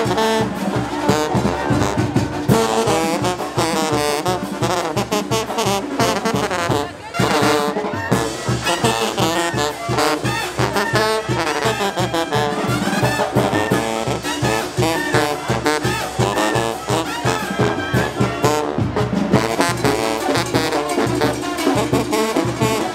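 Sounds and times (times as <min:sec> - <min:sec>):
brass band playing: 0:00.0 - 0:22.9.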